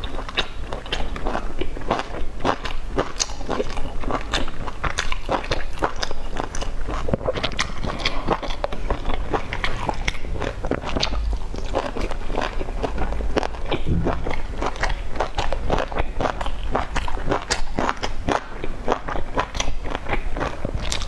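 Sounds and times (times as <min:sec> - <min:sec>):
person chewing: 0:00.0 - 0:21.0.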